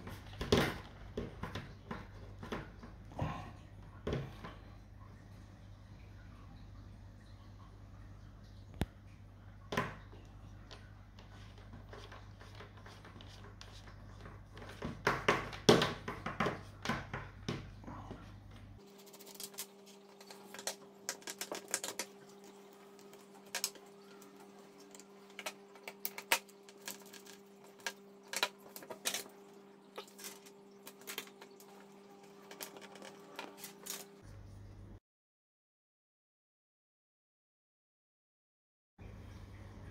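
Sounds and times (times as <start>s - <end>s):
plastic rubbing on pipe: 10.7s - 17.2s, 18.8s - 34.2s.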